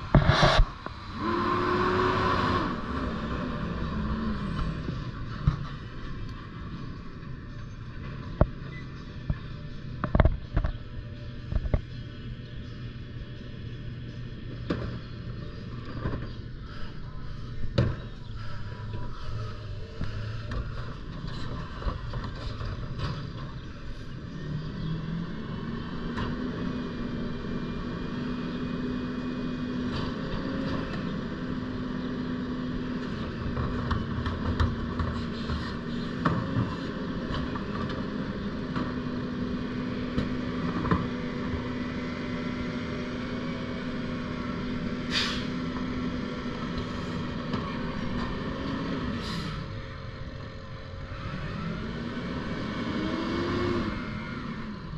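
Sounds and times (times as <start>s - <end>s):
garbage truck engine drone: 0.0s - 54.9s
short hiss: 45.1s - 45.5s.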